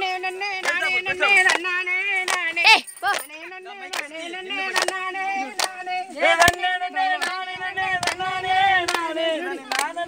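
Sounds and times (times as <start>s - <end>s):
folk song singing: 0.0s - 10.0s
rhythmic hand claps: 0.0s - 10.0s.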